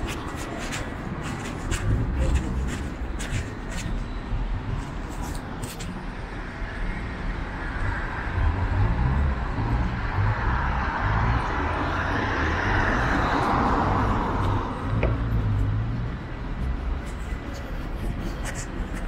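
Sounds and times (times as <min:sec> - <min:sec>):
low rumble of traffic: 0:00.0 - 0:19.0
vehicle passing: 0:07.6 - 0:18.3.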